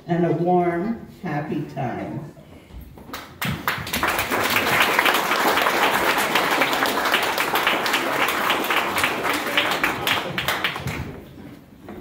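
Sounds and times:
audience applauding: 0:03.1 - 0:11.3.

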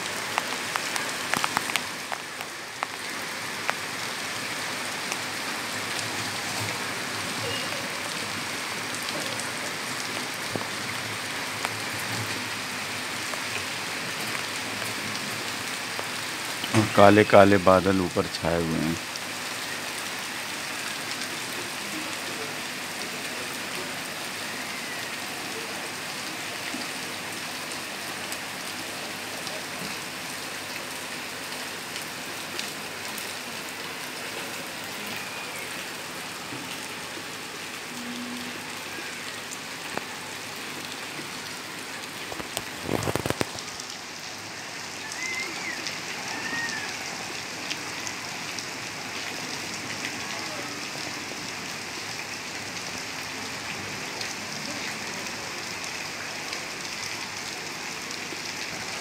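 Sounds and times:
steady rain hiss: 0:00.0 - 0:59.0
raindrop ticks: 0:00.2 - 0:03.9, 0:42.2 - 0:44.0.

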